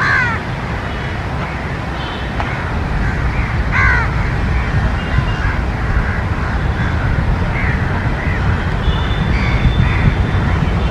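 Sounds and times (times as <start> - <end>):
crow cawing: 0.0 - 0.4, 2.5 - 4.3
diesel locomotives rumbling: 0.0 - 10.9.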